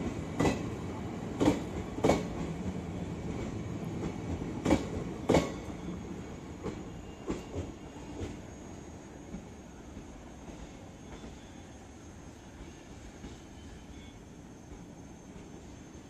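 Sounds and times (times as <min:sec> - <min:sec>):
train wheels clattering on track: 0:00.0 - 0:06.0, 0:06.6 - 0:08.6
train rumble: 0:00.0 - 0:08.6.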